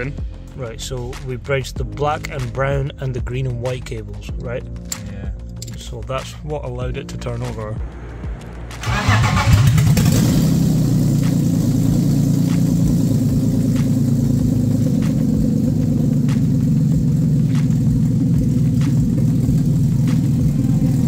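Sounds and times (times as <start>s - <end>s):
car engine cranking and running: 6.9s - 21.0s.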